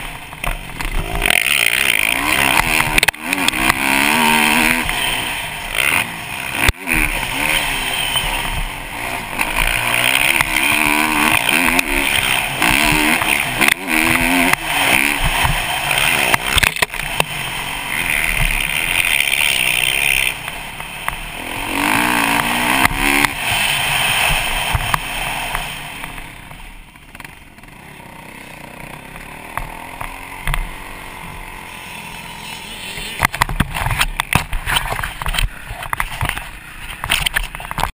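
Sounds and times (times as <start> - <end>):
dirt bike engine revving: 0.0 - 37.9
wind on helmet camera: 33.0 - 37.9.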